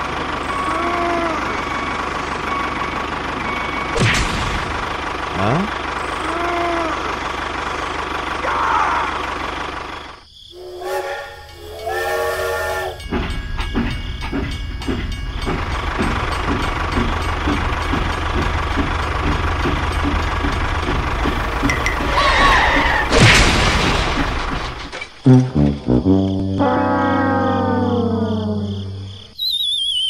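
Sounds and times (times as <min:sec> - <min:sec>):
steam train chuffing: 0:00.0 - 0:09.8, 0:10.6 - 0:23.1
low engine-like rumble: 0:00.0 - 0:11.8, 0:13.0 - 0:25.0
toy train whistle toots: 0:00.4 - 0:01.9, 0:10.6 - 0:13.1.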